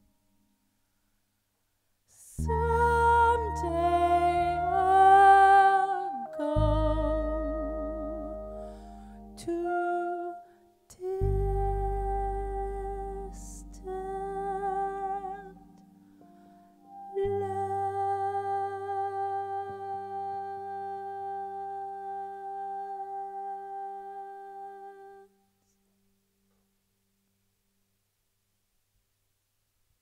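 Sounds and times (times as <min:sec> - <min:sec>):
woman singing wordless notes: 0:02.1 - 0:16.0, 0:16.8 - 0:25.4
bass: 0:02.1 - 0:25.2
clarinet: 0:02.2 - 0:25.4.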